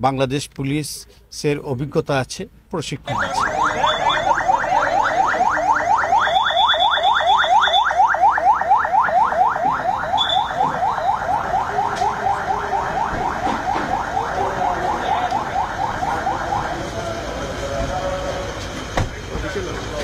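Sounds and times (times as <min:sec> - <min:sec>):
police siren yelping: 0:03.1 - 0:18.7.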